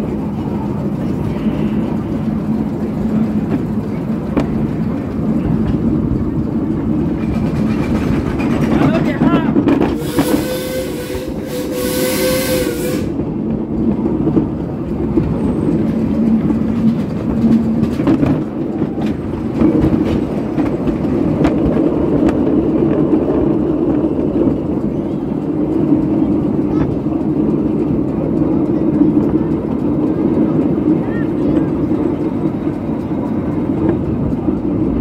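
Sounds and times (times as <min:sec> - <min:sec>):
train rumbling on track: 0:00.0 - 0:35.0
wheels clicking on rails: 0:00.0 - 0:35.0
train horn: 0:10.0 - 0:13.2.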